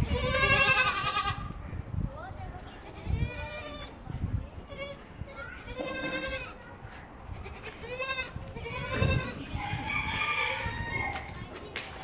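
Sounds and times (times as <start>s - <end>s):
goats bleating: 0.0s - 1.5s, 4.7s - 6.6s, 7.3s - 9.5s.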